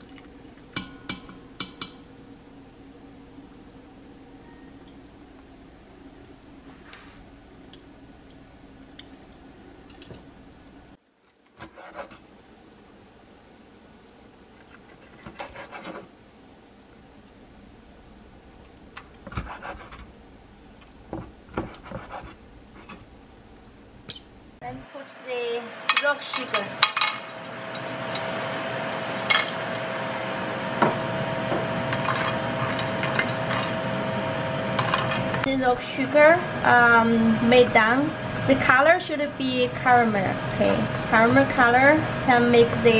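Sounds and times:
steady low hum: 0.0 - 42.9
kitchenware clinking: 24.1 - 24.4, 25.9 - 28.3
metal tongs clicking: 24.1 - 24.4.

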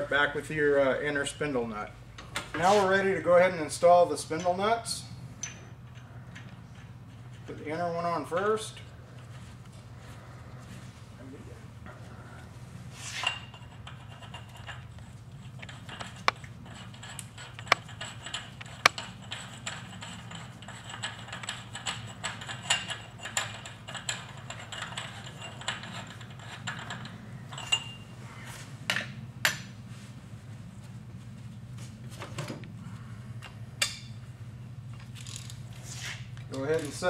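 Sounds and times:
metal nut clicking and ticking: 13.8 - 27.9.

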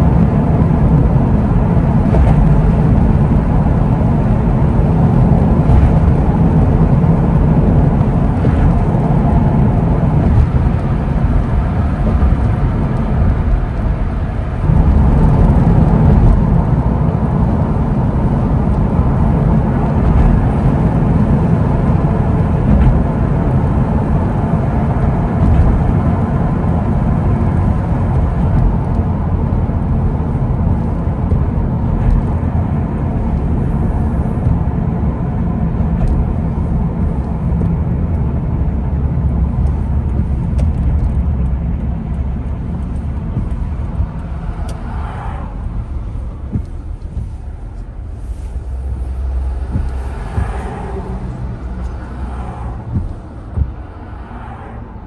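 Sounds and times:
car driving on wet road: 0.0 - 55.0.

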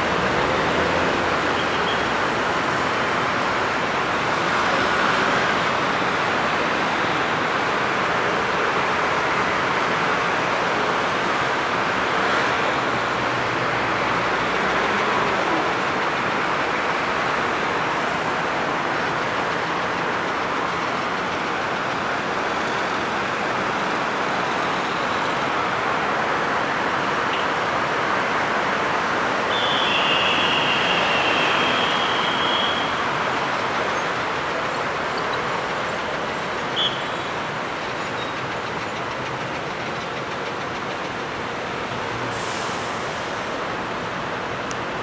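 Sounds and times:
dense road traffic: 0.0 - 45.0.

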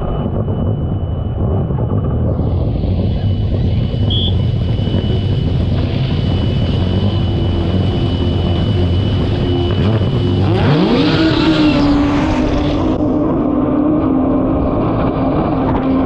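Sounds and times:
jet ski engine running hard: 1.9 - 16.0.

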